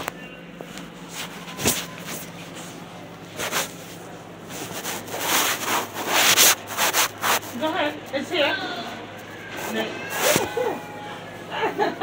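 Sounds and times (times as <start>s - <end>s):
fabric rubbing on microphone: 0.9s - 7.9s, 9.6s - 10.6s.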